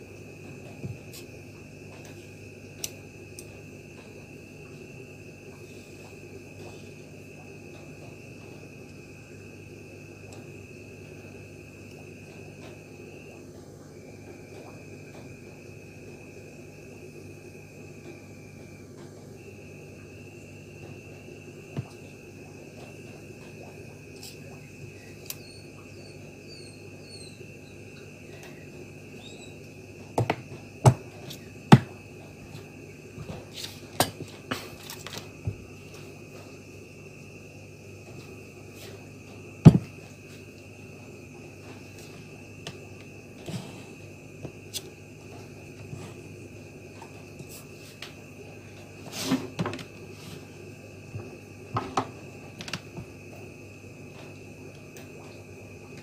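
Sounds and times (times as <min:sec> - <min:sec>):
hard objects knocking on a mat: 0:39.6 - 0:39.9.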